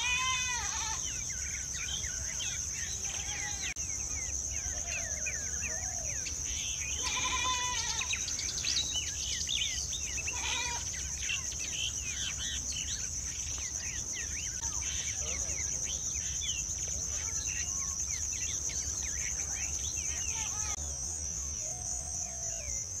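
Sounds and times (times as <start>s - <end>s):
louder lower bird calls: 0.0s - 13.1s
insect drone: 0.0s - 23.0s
small birds chirping: 0.0s - 23.0s.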